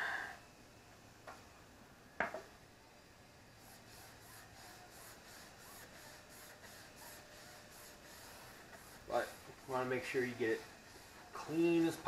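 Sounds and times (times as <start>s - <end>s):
rag wiping rubber tire: 3.8s - 12.0s.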